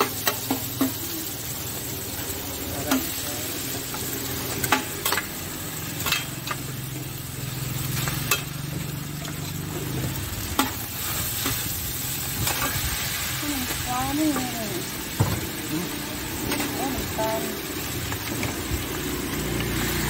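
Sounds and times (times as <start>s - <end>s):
spatula clanking on wok: 0.0s - 1.1s, 6.0s - 6.8s, 8.0s - 8.7s, 10.4s - 11.7s
food sizzling in oil: 0.0s - 20.0s.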